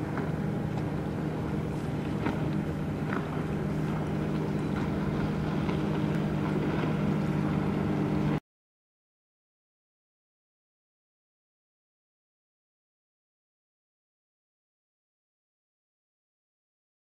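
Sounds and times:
motor droning: 0:00.0 - 0:08.4.

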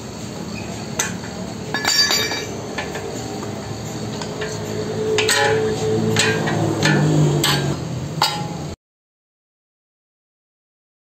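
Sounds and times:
metal tools clinking: 0:00.6 - 0:08.6.

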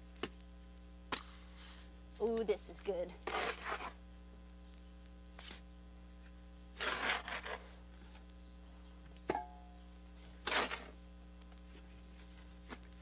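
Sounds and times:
low electrical hum: 0:00.0 - 0:13.0
trowel scraping and slapping mortar: 0:03.2 - 0:04.0, 0:06.8 - 0:07.8, 0:10.4 - 0:11.0.

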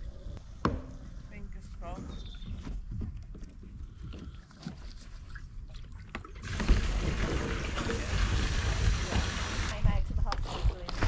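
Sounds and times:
waste liquid gushing: 0:06.4 - 0:09.8.

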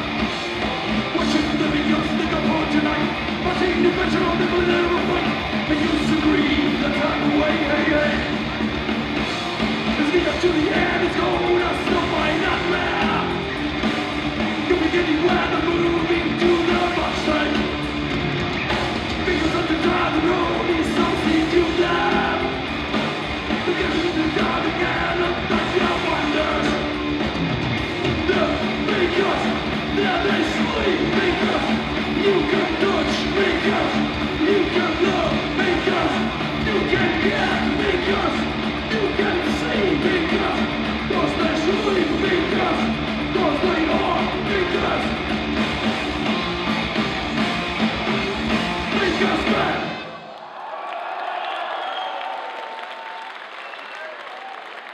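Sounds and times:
heavy metal band playing live: 0:00.0 - 0:50.2.

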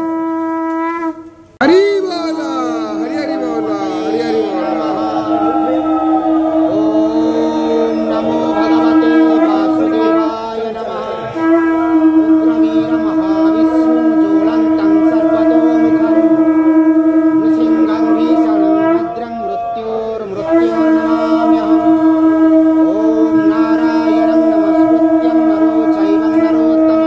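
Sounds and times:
conch shell blasts: 0:00.0 - 0:27.0.

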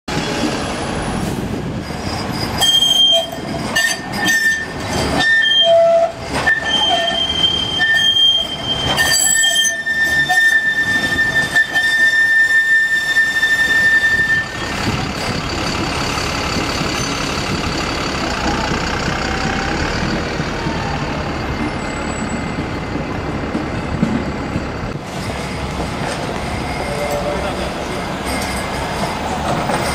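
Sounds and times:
city street noise: 0:00.1 - 0:29.9
tram wheels squealing: 0:00.1 - 0:29.9.

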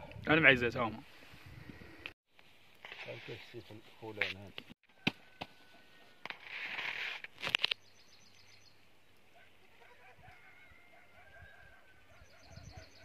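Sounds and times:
faint high bird chirps: 0:10.4 - 0:13.0.

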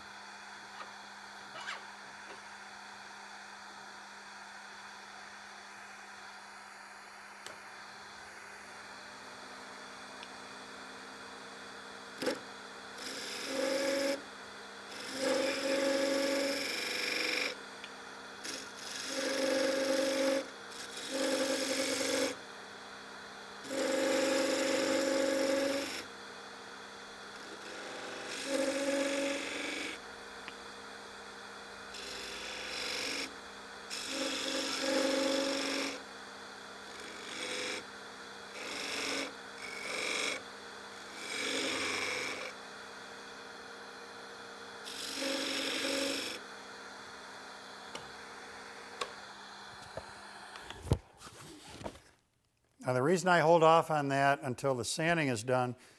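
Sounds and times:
chisel scraping spinning wood: 0:00.0 - 0:03.4, 0:12.2 - 0:14.2, 0:14.8 - 0:17.6, 0:18.4 - 0:22.4, 0:23.6 - 0:26.1, 0:27.3 - 0:30.0, 0:31.9 - 0:33.3, 0:33.9 - 0:36.0, 0:36.8 - 0:37.8, 0:38.5 - 0:42.6, 0:44.8 - 0:46.5
wood lathe running: 0:00.0 - 0:50.9.

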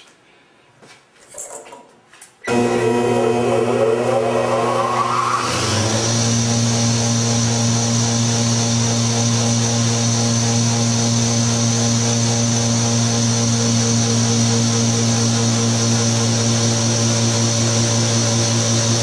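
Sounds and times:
electric motor humming with whine: 0:02.5 - 0:19.0.

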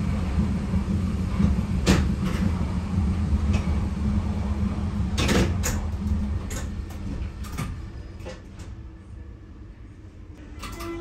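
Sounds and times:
train rumble: 0:00.0 - 0:11.0.

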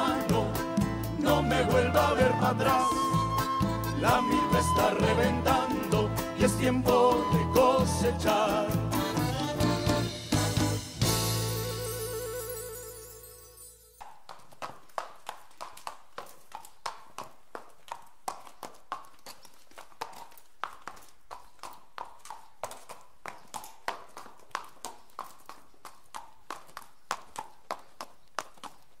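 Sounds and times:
horse hooves clip-clopping on pavement: 0:14.0 - 0:29.0.

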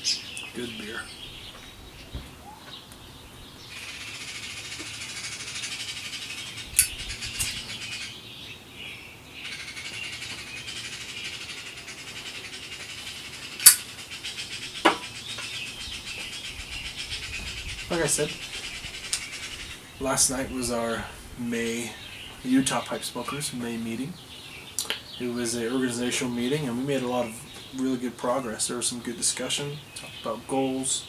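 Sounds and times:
sharp lighter clicks: 0:13.6 - 0:13.9.

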